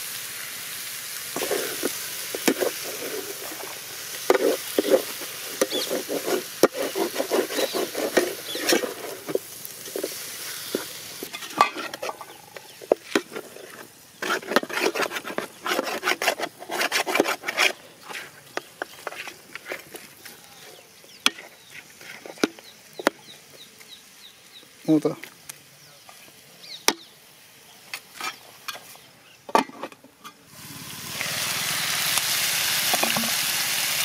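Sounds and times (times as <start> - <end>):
sizzling: 0.0 - 34.0
metal skimmer scraping metal pot: 1.4 - 20.0.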